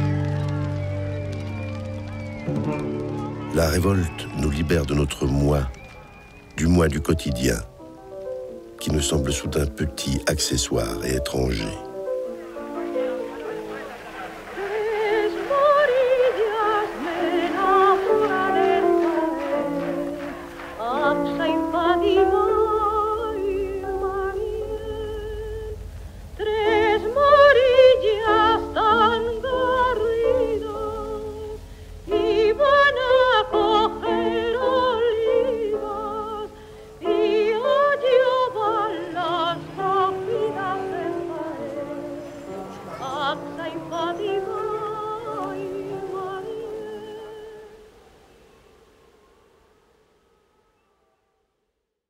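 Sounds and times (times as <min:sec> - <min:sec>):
operatic singing: 0:08.8 - 0:47.9.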